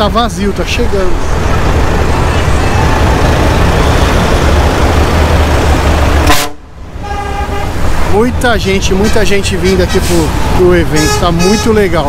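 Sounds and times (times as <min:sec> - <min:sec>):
highway traffic noise: 0:00.0 - 0:12.0
vehicle horn held tone: 0:06.3 - 0:07.7.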